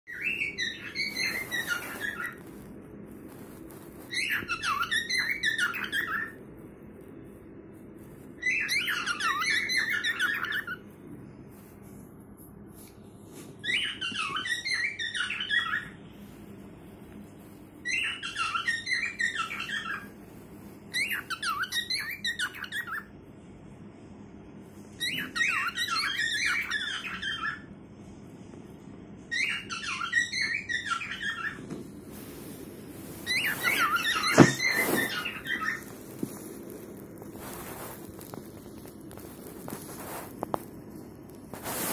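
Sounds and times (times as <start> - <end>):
cockatiel chirps and whistles: 0.1 - 2.7, 3.3 - 6.4, 8.3 - 10.8, 13.6 - 16.0, 17.4 - 23.1, 24.9 - 27.7, 29.3 - 40.4.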